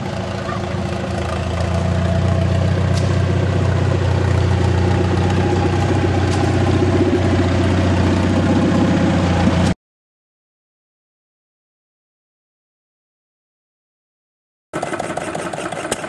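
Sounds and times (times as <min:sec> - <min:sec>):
tractor engine running: 0:00.0 - 0:09.8, 0:14.8 - 0:16.0.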